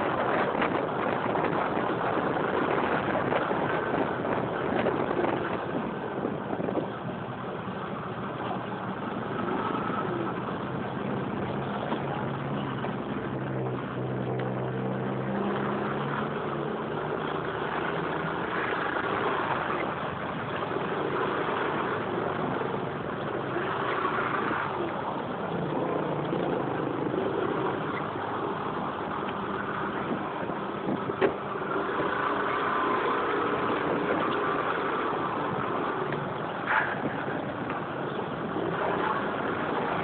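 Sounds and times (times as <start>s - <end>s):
road noise rushing: 0.0s - 40.0s
traffic engines humming: 0.0s - 40.0s.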